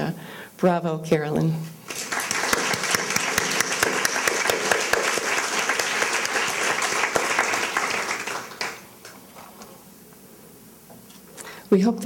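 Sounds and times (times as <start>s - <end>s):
audience applauding: 1.9s - 9.2s.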